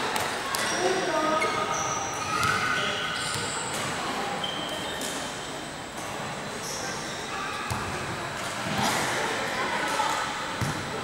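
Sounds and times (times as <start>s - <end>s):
echoing chatter in a gym: 0.0s - 11.0s
sneaker squeaks on wooden floor: 0.6s - 3.6s.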